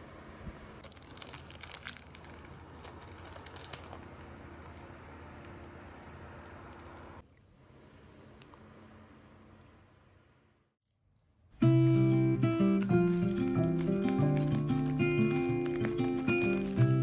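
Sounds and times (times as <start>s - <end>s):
plastic wrapper crinkling: 0.8s - 7.1s, 11.6s - 17.0s.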